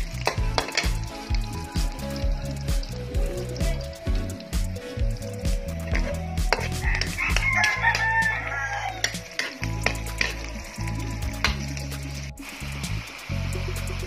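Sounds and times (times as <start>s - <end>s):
onion and garlic frying in oil: 0.0s - 14.0s
metal ladle scraping a pan: 6.0s - 10.6s
rooster crowing: 6.6s - 9.4s.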